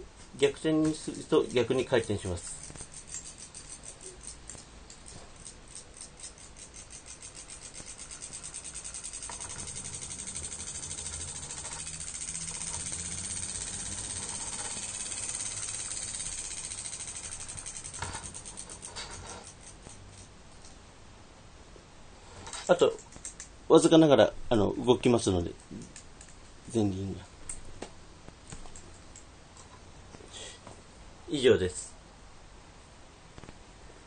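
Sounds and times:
electric motor rapid clicking: 0:05.7 - 0:19.8
low motor hum: 0:08.8 - 0:17.9.

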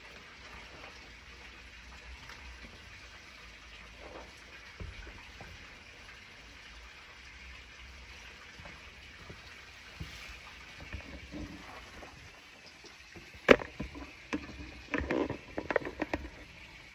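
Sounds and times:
handling knocks and clicks: 0:13.2 - 0:16.5.

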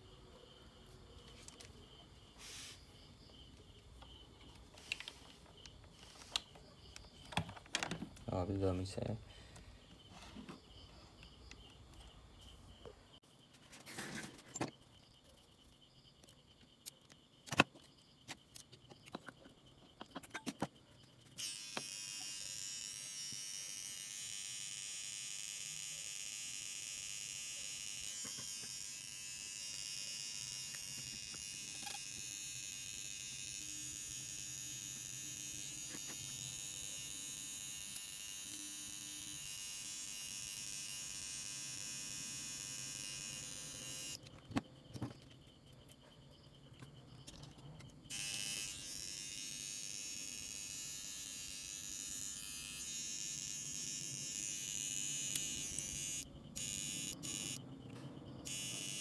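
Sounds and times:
high electrical buzz with hiss: 0:02.4 - 0:02.9, 0:21.4 - 0:44.2, 0:48.1 - 0:57.6, 0:58.4 - 0:59.0.

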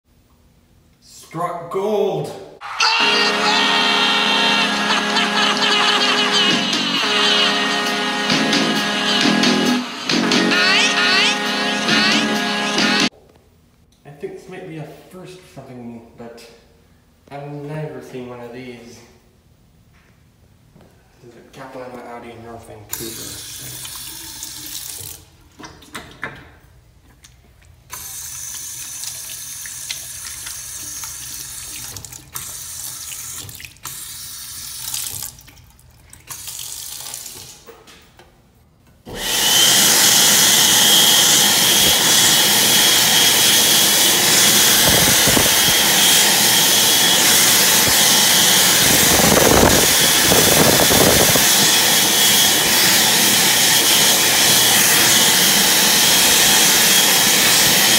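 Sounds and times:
electric hand dryer blowing: 0:02.6 - 0:13.1, 0:39.1 - 0:57.9
water running from sink tap: 0:22.9 - 0:25.3, 0:27.9 - 0:37.6.

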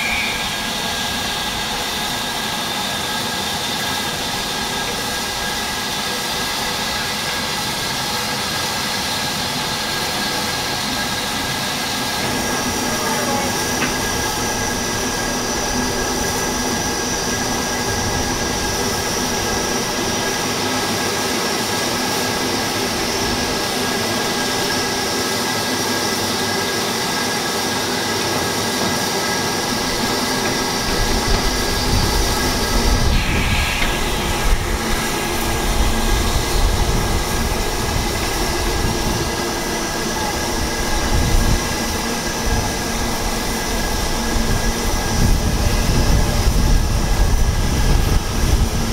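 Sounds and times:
steam locomotive hissing steam: 0:00.0 - 0:48.9.

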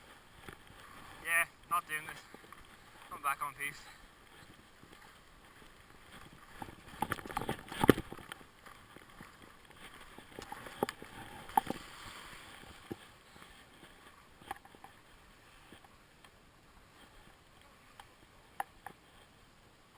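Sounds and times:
snowboard scraping on snow: 0:11.1 - 0:13.4.

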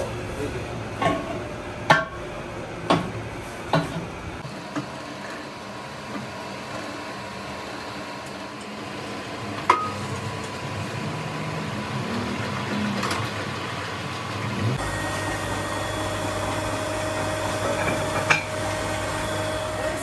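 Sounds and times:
lathe hum: 0:04.4 - 0:20.0
lathe spinning wheel: 0:04.4 - 0:20.0.

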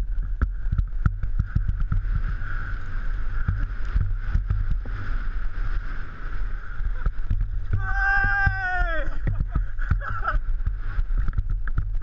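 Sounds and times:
bike knocks and clatters: 0:00.0 - 0:02.3, 0:11.2 - 0:12.0
heavy low rumble: 0:00.0 - 0:12.0.

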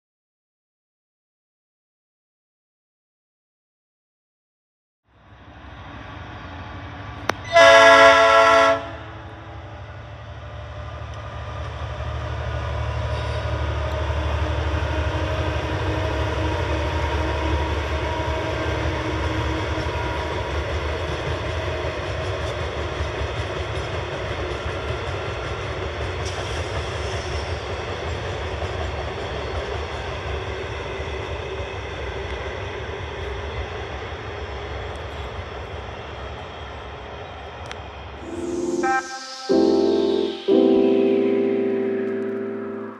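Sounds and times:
freight train rumbling past: 0:05.2 - 0:42.9
locomotive horn blast: 0:07.4 - 0:09.1, 0:38.2 - 0:42.9.

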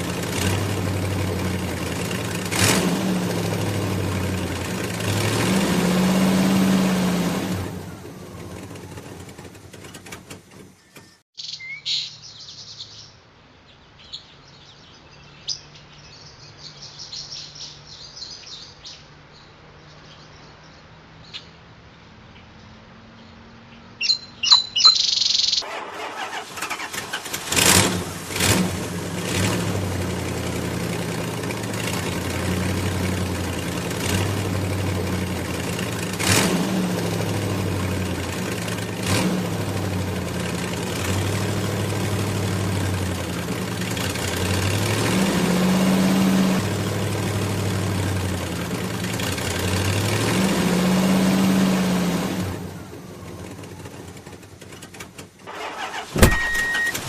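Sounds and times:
tractor engine running: 0:00.0 - 0:11.3, 0:24.4 - 0:57.0
high chirps: 0:24.0 - 0:25.7.

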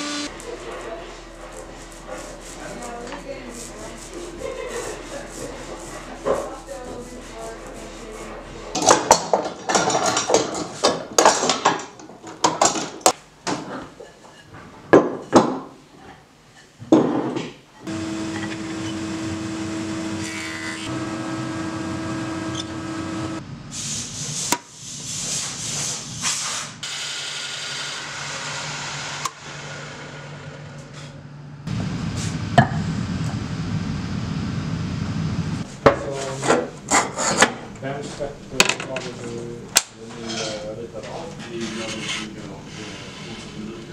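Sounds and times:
woodworking machine running: 0:00.0 - 0:10.4, 0:17.9 - 0:23.4, 0:26.8 - 0:35.7.

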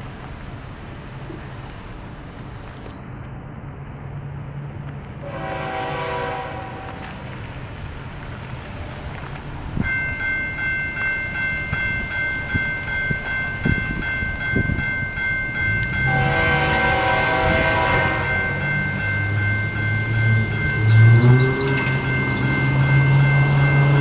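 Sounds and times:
train air horn: 0:05.2 - 0:07.1, 0:16.1 - 0:18.6
level-crossing warning bell: 0:09.7 - 0:24.0.

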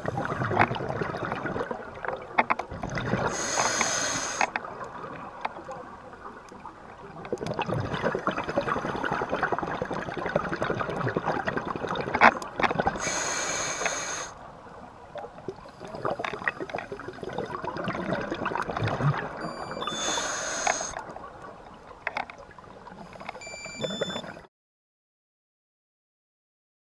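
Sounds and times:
gurgling bubbles from diver exhaling: 0:00.0 - 0:02.0, 0:02.7 - 0:04.5, 0:07.3 - 0:14.2, 0:15.8 - 0:20.9
hissing inhalation through regulator: 0:03.3 - 0:04.5, 0:13.0 - 0:14.4, 0:19.8 - 0:21.0.

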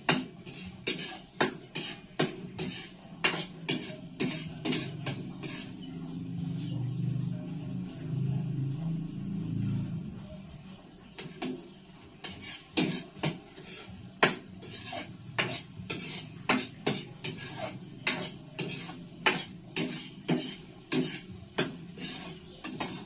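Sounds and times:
metal ladle scraping a pan: 0:00.0 - 0:06.1, 0:11.0 - 0:23.0.

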